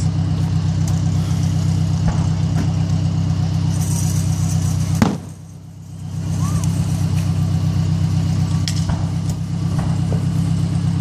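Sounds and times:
vehicle engine idling: 0.0s - 11.0s
sharp bang: 4.9s - 5.5s.

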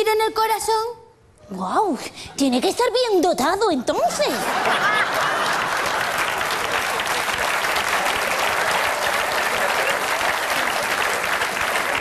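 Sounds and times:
audience laughter: 4.1s - 7.4s
audience applauding: 4.6s - 12.0s.

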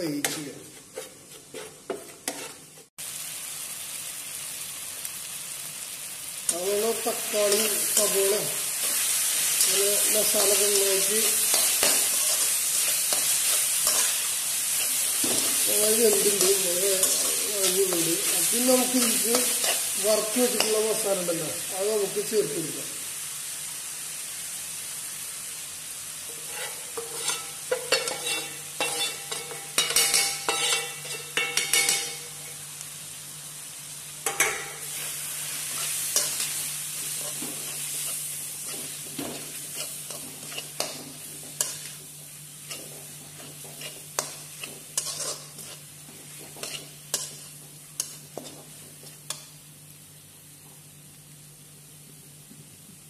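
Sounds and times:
masala sizzling in a pan: 0.0s - 53.0s
metal spatula scraping a pan: 0.2s - 2.9s, 9.6s - 18.3s, 26.3s - 32.3s, 35.7s - 42.0s, 42.6s - 48.6s.

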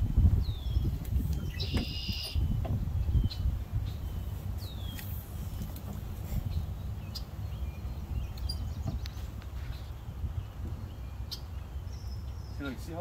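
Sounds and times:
wind rumbling on microphone: 0.0s - 13.0s
high bird chirps: 0.4s - 5.6s.

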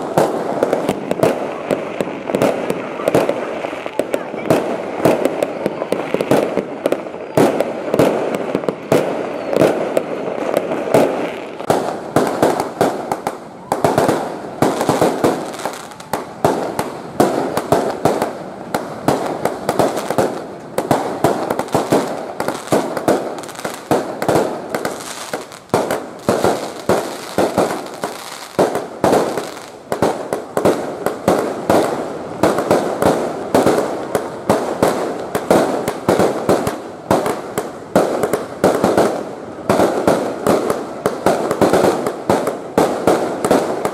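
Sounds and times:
fireworks barrage: 0.0s - 43.9s.

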